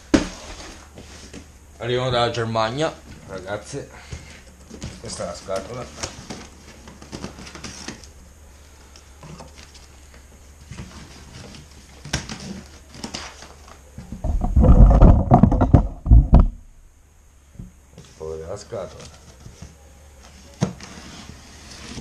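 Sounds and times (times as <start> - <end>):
plastic strap rustling and knocking: 14.0 - 16.6
loud dull rumbling thumps: 14.2 - 16.9.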